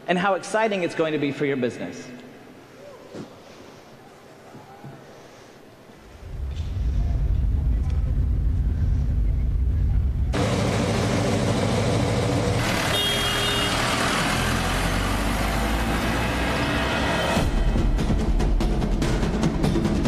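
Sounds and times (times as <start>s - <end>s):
road traffic noise: 6.2s - 17.6s
high horn tone: 12.6s - 14.2s.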